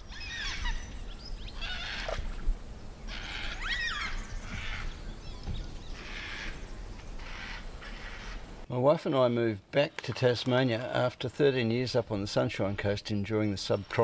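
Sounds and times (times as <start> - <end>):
wild birds whistling: 0.0 - 8.7.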